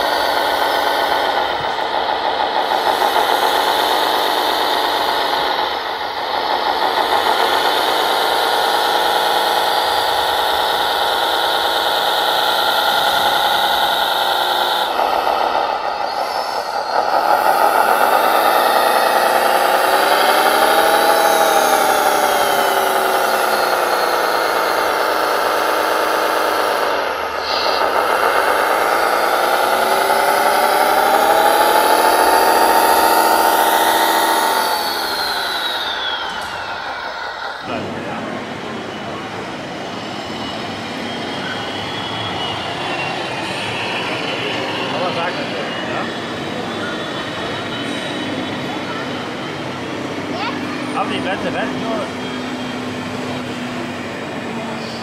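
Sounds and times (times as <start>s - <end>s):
toy loader motor whining: 0.0s - 37.8s
high steady whine: 0.0s - 54.8s.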